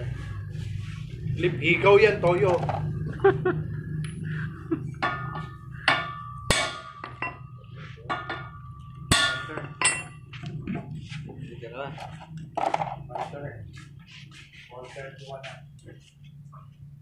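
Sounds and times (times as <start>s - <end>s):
hammer striking metal: 5.0s - 10.2s.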